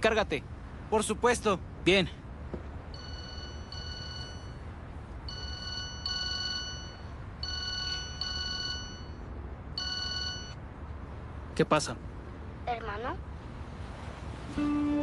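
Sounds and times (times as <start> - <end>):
mobile phone ringtone: 3.0 - 4.7, 5.3 - 10.6.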